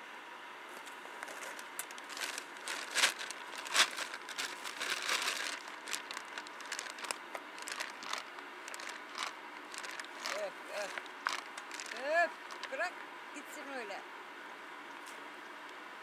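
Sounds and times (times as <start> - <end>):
plastic bags crinkling: 1.2 - 12.8.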